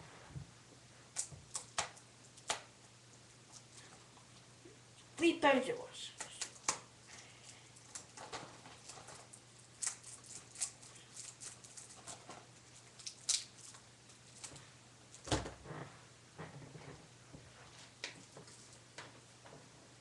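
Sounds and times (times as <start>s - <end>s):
plastic wrapping crinkling: 7.8s - 14.7s.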